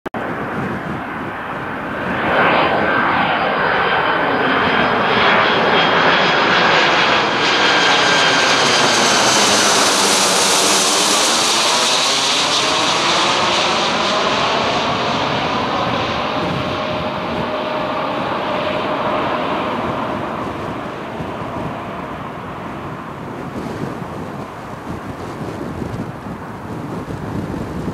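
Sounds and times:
jet passing low overhead: 0:00.2 - 0:27.9.

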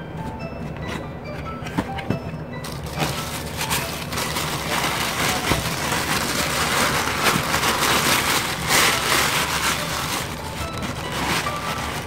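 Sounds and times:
tissue paper rustling and crinkling: 0:02.6 - 0:12.0.

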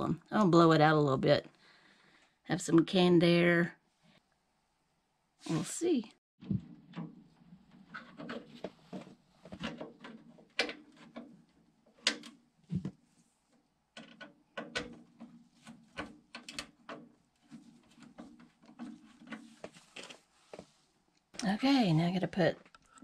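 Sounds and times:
hands handling wires clicks: 0:07.9 - 0:12.4, 0:13.5 - 0:20.2.

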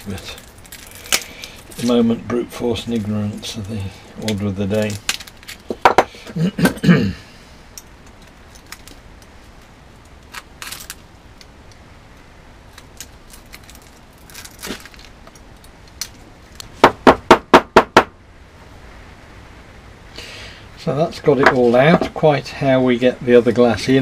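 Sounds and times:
sharp knocks: 0:16.8 - 0:18.2.

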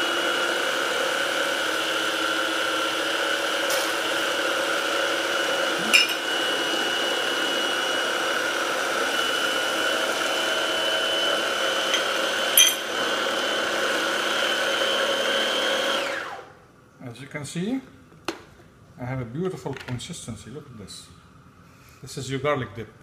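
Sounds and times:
countertop blender running: 0:00.0 - 0:16.6.

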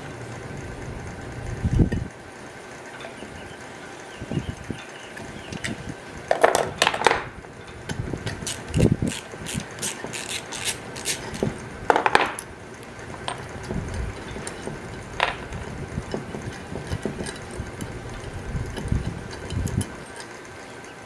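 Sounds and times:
metal clanks: 0:13.2 - 0:20.4
metal tools clinking on wood: 0:14.2 - 0:20.4.

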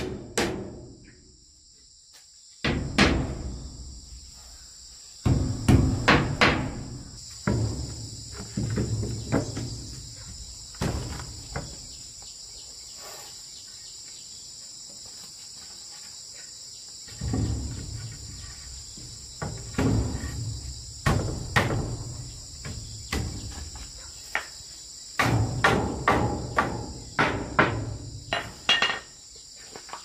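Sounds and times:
crickets chirping: 0:00.0 - 0:30.0
wooden boards knocking and scraping: 0:05.2 - 0:12.0, 0:17.0 - 0:30.0.

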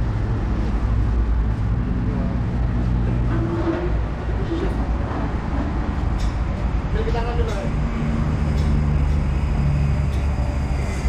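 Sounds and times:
people talking: 0:07.0 - 0:07.8.

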